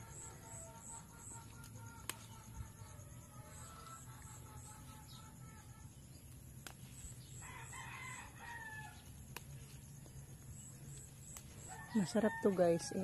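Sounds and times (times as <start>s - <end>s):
rooster crowing: 7.4s - 9.0s, 11.6s - 13.0s.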